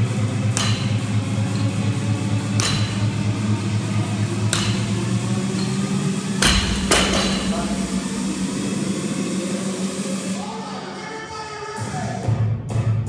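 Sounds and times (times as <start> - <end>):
barbell thudding on floor: 6.4 - 8.0.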